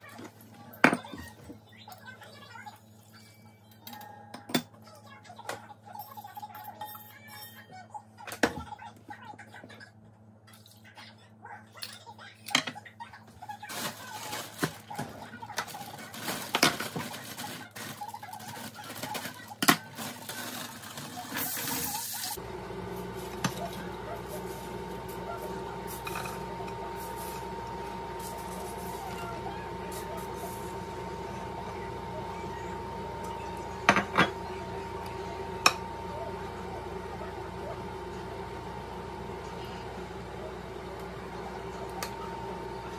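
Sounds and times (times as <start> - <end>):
plastic bag crinkling: 13.6 - 15.0, 15.6 - 22.2.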